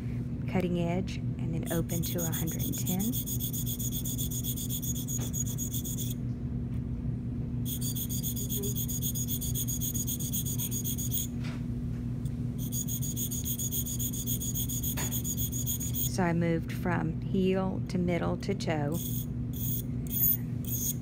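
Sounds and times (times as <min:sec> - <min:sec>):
steady low hum: 0:00.0 - 0:21.0
sharpening stone rasping on steel: 0:01.7 - 0:06.2, 0:07.7 - 0:11.3, 0:12.6 - 0:16.1, 0:19.0 - 0:21.0.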